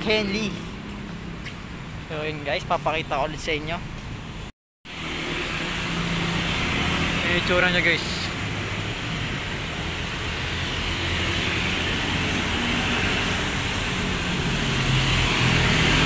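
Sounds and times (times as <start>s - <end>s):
traffic engine rumble: 0.0s - 16.0s.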